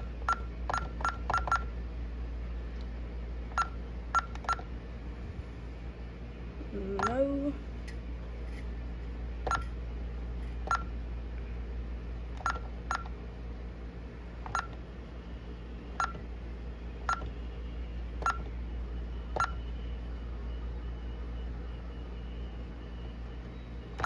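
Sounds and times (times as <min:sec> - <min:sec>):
alarm keypad beeps: 0:00.2 - 0:01.7, 0:03.6 - 0:04.7, 0:12.4 - 0:13.1, 0:14.5 - 0:14.8, 0:17.1 - 0:17.3, 0:18.2 - 0:18.5, 0:19.1 - 0:19.8.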